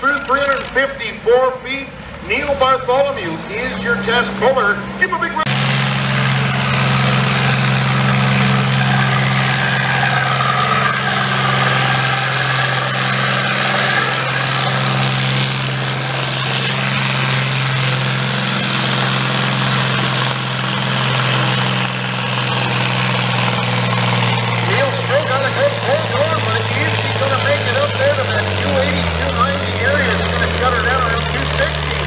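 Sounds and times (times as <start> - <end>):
diesel tractor engine under load: 0.0 - 32.0.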